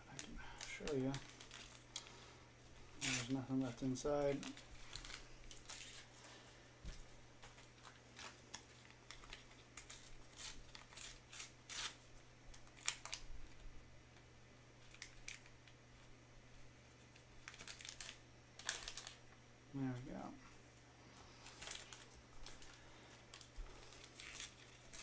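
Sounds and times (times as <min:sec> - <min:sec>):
paper wrappers crinkling and tearing: 0:00.0 - 0:02.3, 0:03.0 - 0:06.4, 0:07.4 - 0:13.6, 0:14.8 - 0:15.6, 0:17.1 - 0:19.2, 0:21.4 - 0:25.0.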